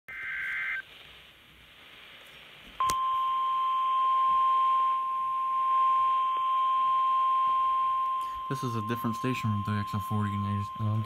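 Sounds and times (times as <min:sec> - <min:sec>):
radio hiss: 0:00.1 - 0:02.9, 0:08.2 - 0:11.0.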